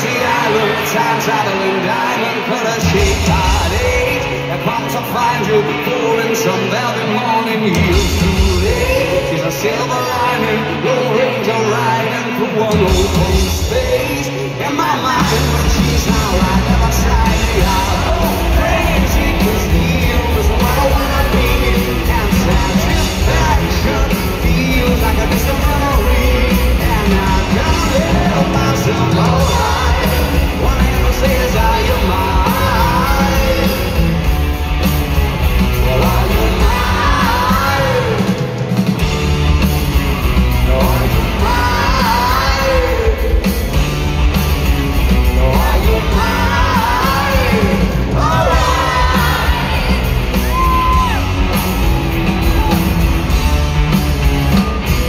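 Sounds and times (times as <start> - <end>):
man singing lead vocal: 0.0 - 34.4, 35.4 - 39.0, 40.4 - 44.0, 44.9 - 53.1
live rock band playing: 0.0 - 55.0.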